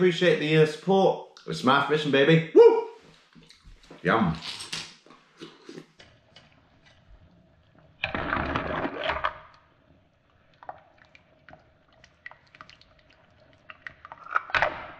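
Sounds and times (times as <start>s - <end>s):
water sloshing in a pot: 10.1s - 14.5s.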